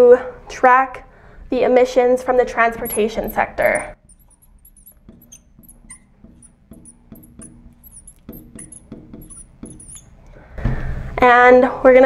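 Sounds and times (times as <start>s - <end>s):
marker squeaking on glass: 2.8s - 10.4s.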